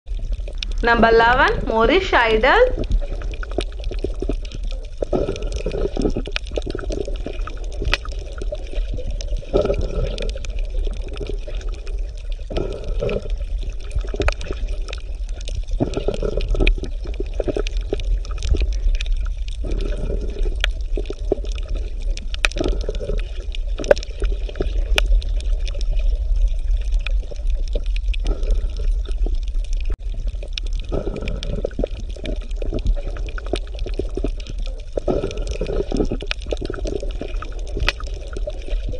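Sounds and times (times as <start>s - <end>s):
water bubbling underwater: 0.0s - 38.9s
steady low rumble: 0.1s - 22.8s.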